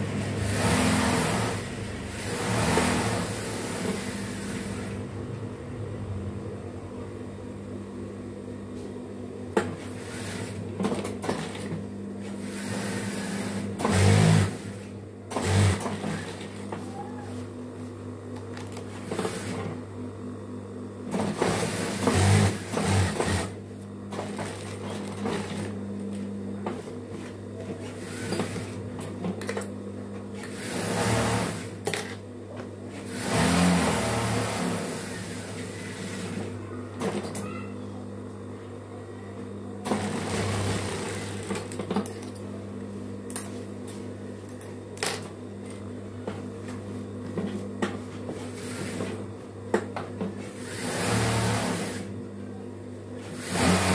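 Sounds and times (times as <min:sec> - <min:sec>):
fast machine stitching: 0:00.2 - 0:05.0, 0:10.0 - 0:10.6, 0:12.4 - 0:16.5, 0:21.1 - 0:23.6, 0:30.4 - 0:31.8, 0:33.1 - 0:36.5, 0:39.8 - 0:41.7, 0:50.6 - 0:52.1, 0:53.2 - 0:53.9
sewing machine motor humming: 0:00.2 - 0:05.0, 0:12.3 - 0:16.8, 0:21.1 - 0:25.8, 0:30.4 - 0:31.8, 0:33.0 - 0:36.6, 0:39.8 - 0:41.7, 0:50.6 - 0:52.1, 0:53.4 - 0:53.9.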